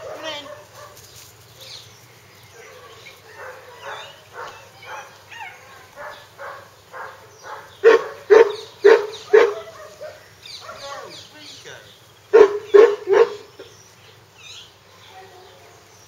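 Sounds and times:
loud dog barks: 0:00.0 - 0:01.0, 0:02.6 - 0:11.2, 0:12.3 - 0:13.7
puppies yapping: 0:02.5 - 0:11.3, 0:12.3 - 0:13.8.

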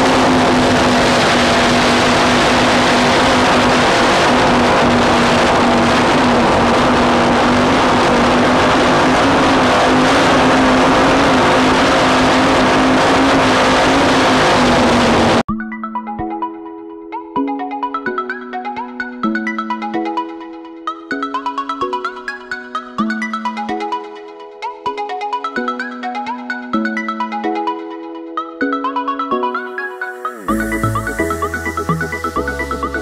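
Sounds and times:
powerboat engine: 0:00.0 - 0:15.4
rush of wind and water: 0:00.0 - 0:15.4.

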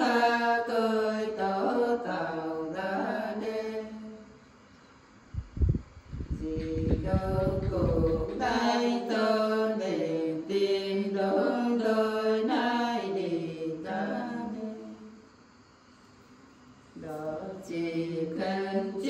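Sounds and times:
women singing unaccompanied: 0:00.0 - 0:04.4, 0:06.2 - 0:15.2, 0:17.0 - 0:19.0
low thumps: 0:05.4 - 0:08.6.

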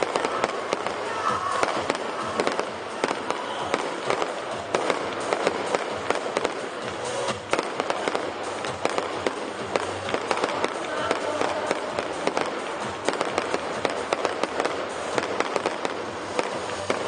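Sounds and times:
fireworks bangs and crackles: 0:00.0 - 0:17.0
noisy rumble: 0:00.0 - 0:17.0.

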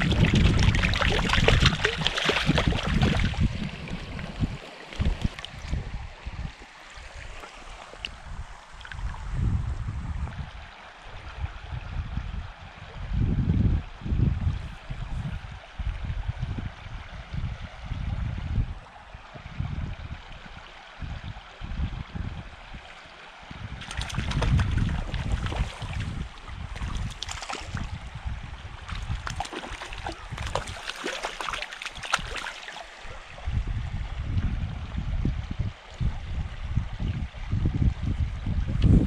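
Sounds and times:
fish splashing at surface: 0:00.0 - 0:03.4, 0:23.8 - 0:27.9, 0:28.9 - 0:33.0
running stream: 0:00.0 - 0:39.0
wind buffeting microphone: 0:00.0 - 0:39.0.

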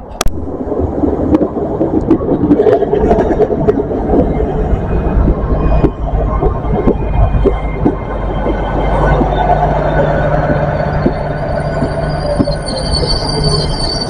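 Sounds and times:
diesel train rumbling past: 0:00.0 - 0:14.0
steady engine hum: 0:00.0 - 0:14.0.

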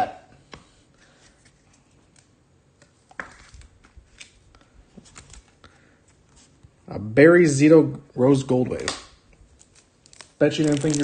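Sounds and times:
cards rustling: 0:01.0 - 0:06.6, 0:09.5 - 0:11.0.

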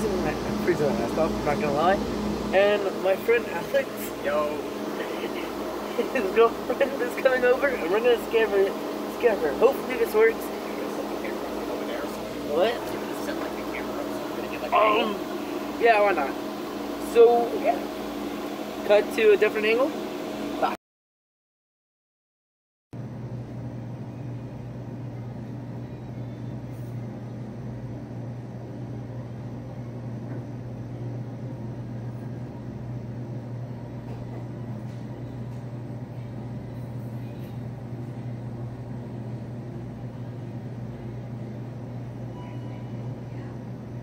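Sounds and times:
refrigeration equipment humming: 0:00.0 - 0:20.8, 0:23.0 - 0:44.0.

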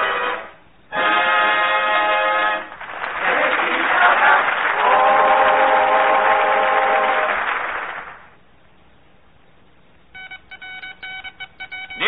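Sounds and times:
studio audience applause: 0:02.6 - 0:08.4.

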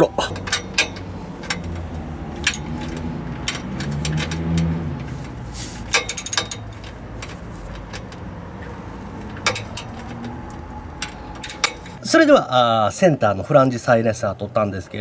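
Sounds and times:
wrench clicking on metal nuts: 0:00.2 - 0:08.3, 0:09.1 - 0:12.0.

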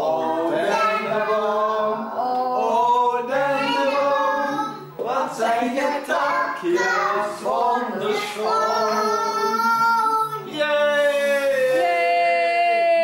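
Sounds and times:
child singing: 0:00.1 - 0:01.4, 0:02.2 - 0:04.9, 0:05.7 - 0:10.5.

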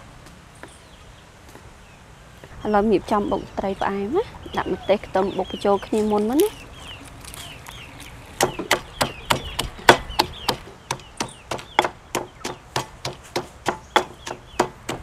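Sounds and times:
stone pestle pounding in mortar: 0:08.4 - 0:15.0.

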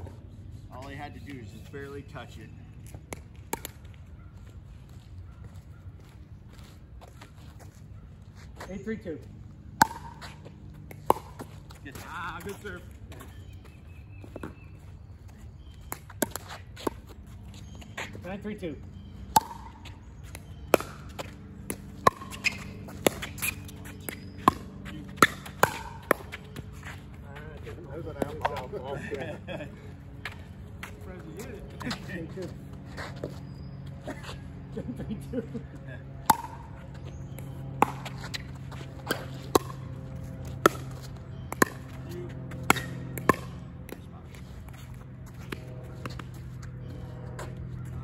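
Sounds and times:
paddles striking pickleball: 0:02.8 - 0:04.3, 0:09.7 - 0:28.8, 0:30.0 - 0:31.1, 0:36.1 - 0:48.0
ball bouncing on hard court: 0:03.1 - 0:03.9, 0:09.8 - 0:14.7, 0:19.2 - 0:27.0, 0:36.2 - 0:48.0.

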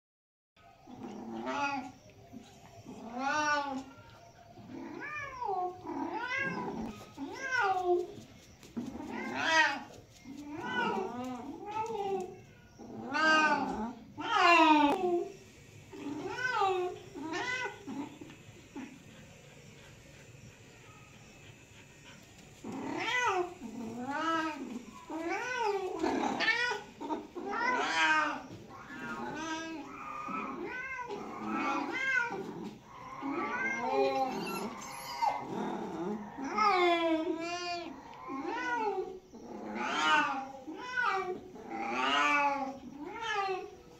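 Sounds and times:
cat meowing: 0:08.9 - 0:15.3, 0:16.0 - 0:18.1, 0:22.7 - 0:35.6, 0:36.4 - 0:43.8.

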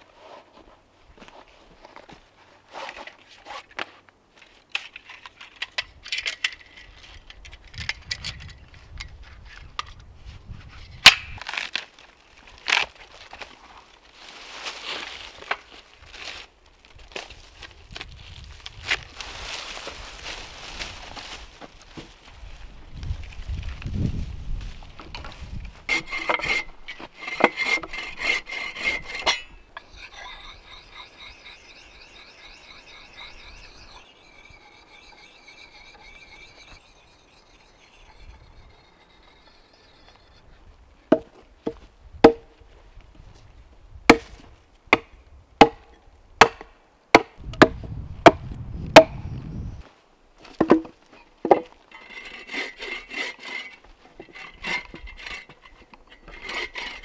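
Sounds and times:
rasping strokes on wood: 0:25.9 - 0:40.4, 0:52.0 - 0:57.0.

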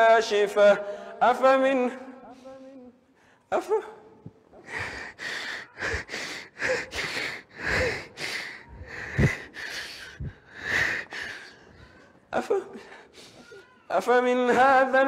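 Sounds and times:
man sobbing: 0:03.6 - 0:11.7, 0:12.3 - 0:15.0
breathy gasps and sniffs: 0:04.6 - 0:11.7.

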